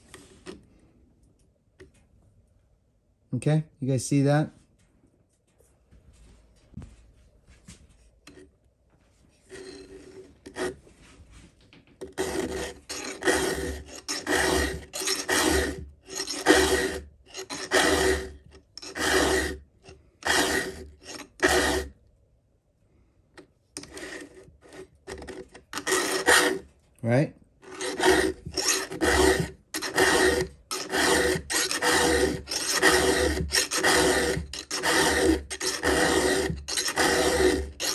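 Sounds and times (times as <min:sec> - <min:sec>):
file rasping on chain tooth: 0:09.5 - 0:10.8, 0:12.0 - 0:19.6, 0:20.2 - 0:22.0, 0:23.8 - 0:26.7, 0:27.6 - 0:37.9.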